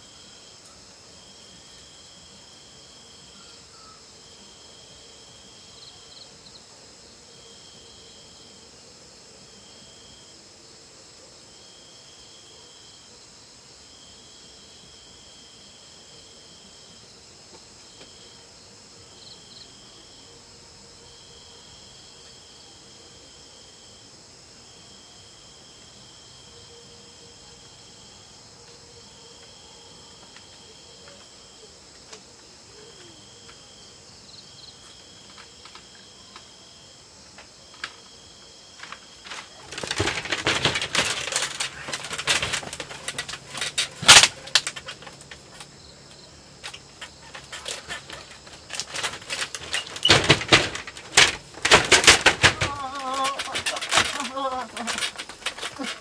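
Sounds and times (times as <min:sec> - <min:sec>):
crickets chirping: 0:00.0 - 0:56.0
close rustling and clattering: 0:37.3 - 0:56.0.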